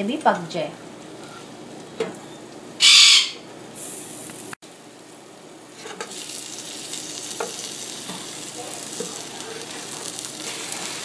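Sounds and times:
chicken sizzling on baking tray: 3.8s - 11.0s.

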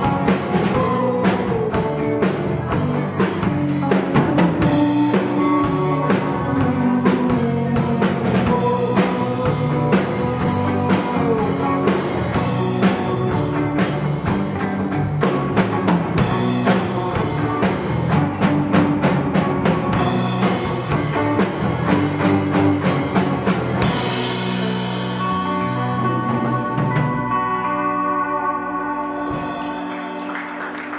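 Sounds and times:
guitar chords ringing: 0.0s - 30.6s
live rock band playing: 0.0s - 30.9s.

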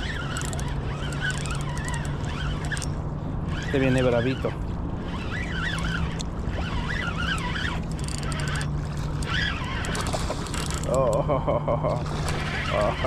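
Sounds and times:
steady low hum: 0.0s - 13.0s
wind: 0.0s - 13.0s
high wavering bird calls: 4.2s - 8.6s.

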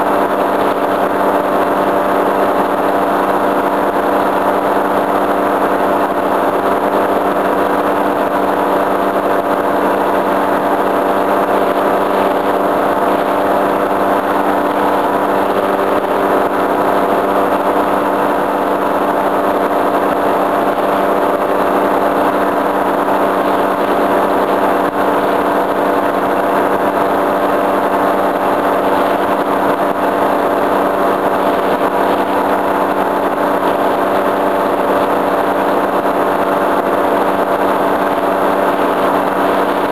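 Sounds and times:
paramotor engine droning: 0.0s - 39.9s.

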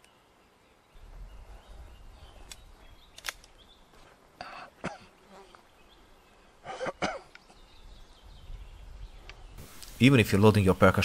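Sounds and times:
revolver metallic clicks: 2.4s - 3.6s.

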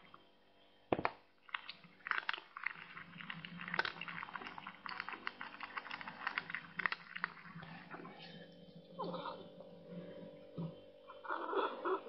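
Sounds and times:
cat chewing and crunching: 1.4s - 9.9s.

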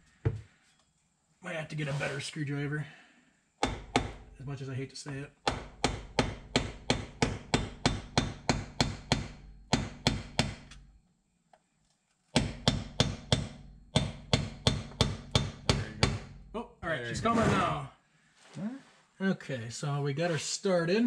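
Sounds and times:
hammer striking a screwdriver: 5.5s - 10.8s, 12.4s - 16.2s.

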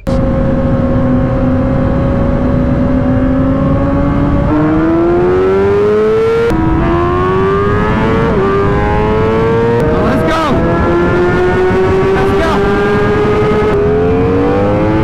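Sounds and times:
motorcycle engine accelerating: 0.0s - 15.0s
wind rushing across microphone: 6.5s - 15.0s.

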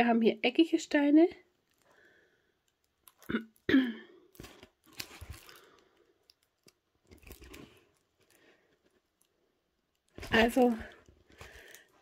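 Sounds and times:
plastic film clicks and crackles: 1.6s - 3.7s, 4.3s - 12.0s
plastic film crinkling: 4.3s - 9.3s, 9.9s - 12.0s.

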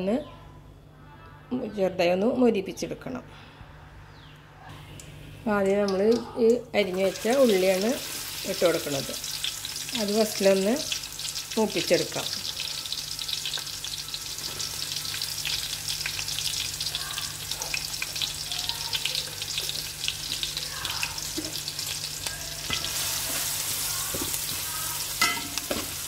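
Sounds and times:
shallots sizzling in oil: 6.8s - 26.0s
spatula stirring in pan: 19.4s - 26.0s.

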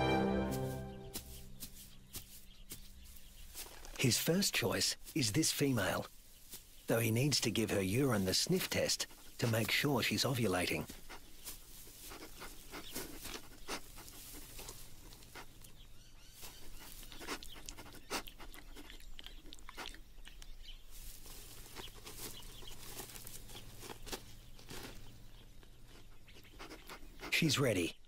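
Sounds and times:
soft crunches on dry ground: 0.6s - 27.0s
animal sniffing and snuffling: 1.0s - 27.6s.

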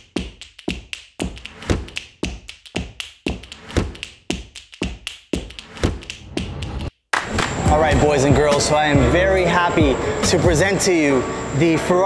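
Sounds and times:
music with percussive beat: 0.0s - 9.1s.

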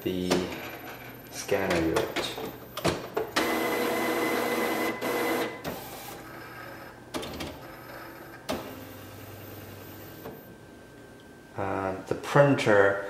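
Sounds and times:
printer carriage motor running: 0.5s - 9.0s.

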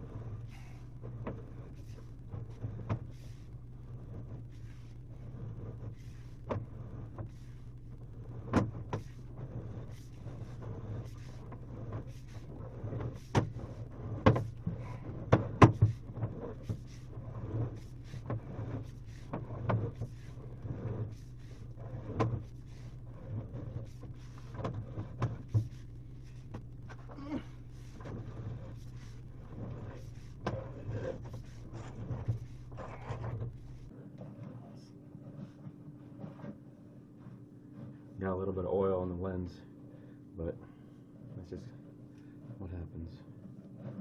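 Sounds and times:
low hum: 0.0s - 44.0s
knocks and clicks in drain pipe: 11.1s - 18.5s.

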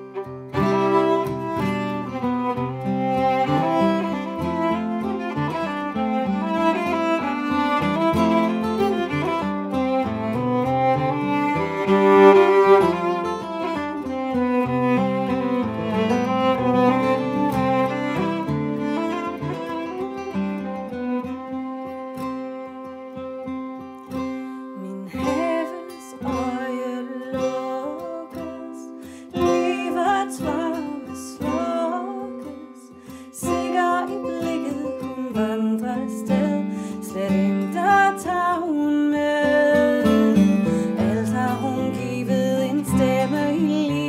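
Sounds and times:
fingerpicked acoustic guitar: 0.0s - 44.0s
violin: 0.0s - 44.0s
woman singing: 24.1s - 44.0s.

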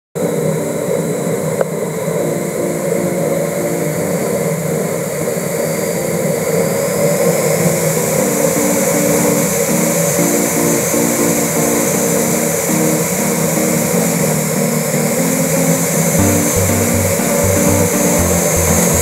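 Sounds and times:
short repeated musical notes: 16.2s - 19.0s.

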